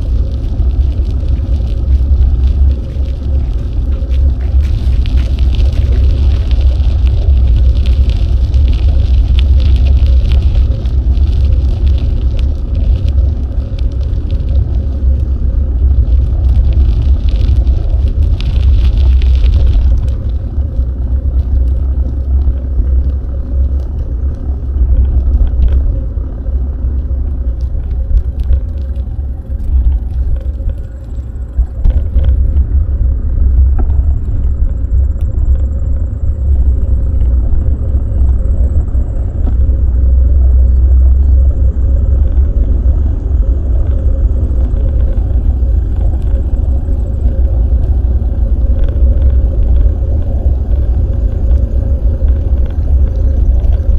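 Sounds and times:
small clicks and rattles: 0.0 - 32.8
wind buffeting microphone: 0.0 - 53.9.

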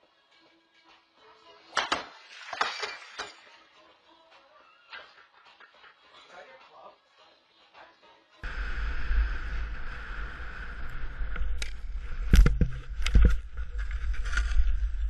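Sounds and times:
snowboard hissing on snow: 8.4 - 11.3.

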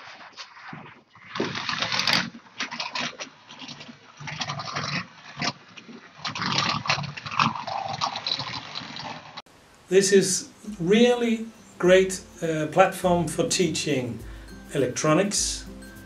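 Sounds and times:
wheels and chassis rattling: 1.4 - 9.4.

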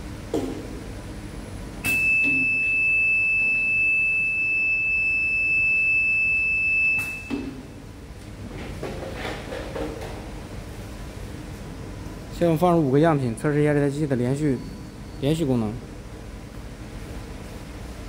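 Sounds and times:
high-pitched alarm buzzer tone: 1.9 - 7.4.

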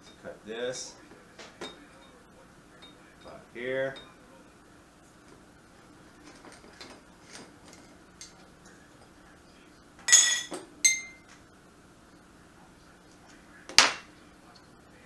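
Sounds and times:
metal and glass clinks: 10.1 - 11.2.

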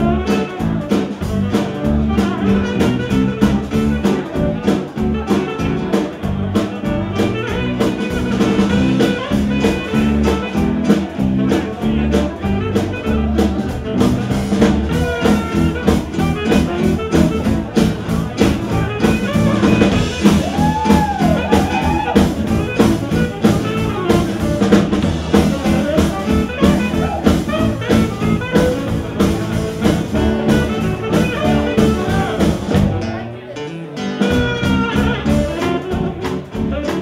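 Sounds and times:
tenor saxophone solo: 0.0 - 33.0, 34.2 - 37.0
acoustic guitar: 0.0 - 37.0
drum kit: 0.0 - 37.0
electric bass: 0.0 - 37.0.

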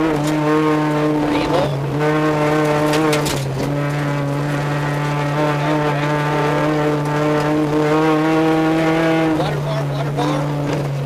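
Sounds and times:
car engine running: 0.0 - 11.0.

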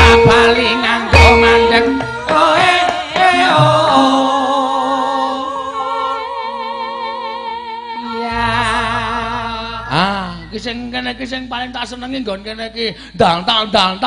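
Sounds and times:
person singing with vibrato: 0.0 - 11.9
sustained accompanying tones: 0.0 - 13.3
deep low tone: 8.2 - 12.8.

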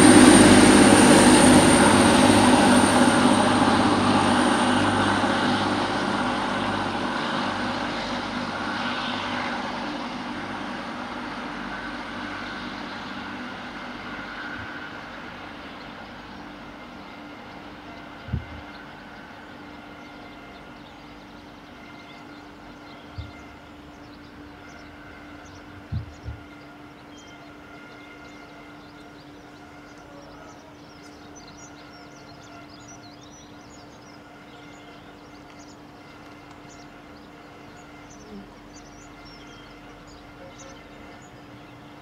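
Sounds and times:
train engines droning: 0.0 - 42.0.

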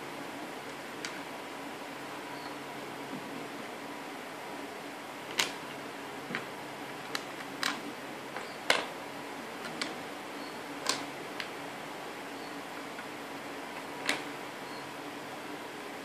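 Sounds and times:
plastic pieces clicking on wood: 10.8 - 11.5.

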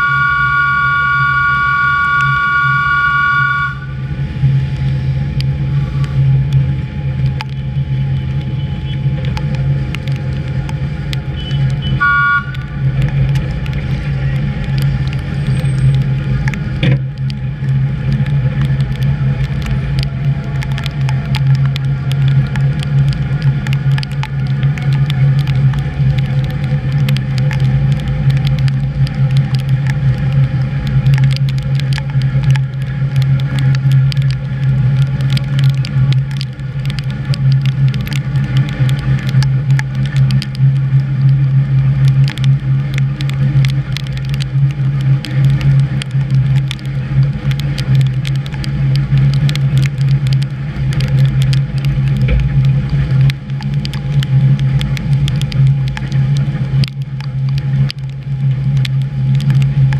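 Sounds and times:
high steady tone: 0.0 - 4.0
train motor hum and rumble: 0.0 - 57.8
scattered clicks: 9.2 - 59.9.

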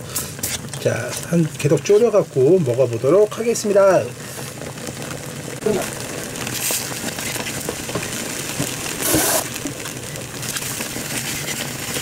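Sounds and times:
risotto simmering and sizzling in pan: 0.0 - 12.0.

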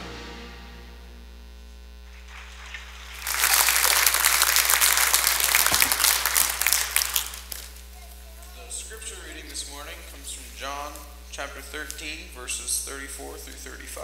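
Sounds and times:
congregation applauding: 2.1 - 9.5.

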